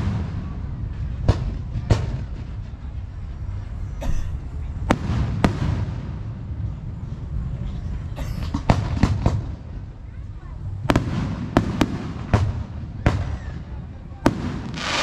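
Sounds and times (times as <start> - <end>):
firework crackling hiss: 14.2 - 15.0
firework shells bursting: 14.3 - 15.0.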